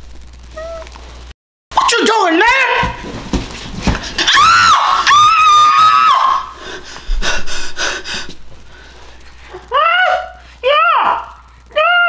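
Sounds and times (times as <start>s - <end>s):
high-pitched wordless cries: 9.5s - 12.0s.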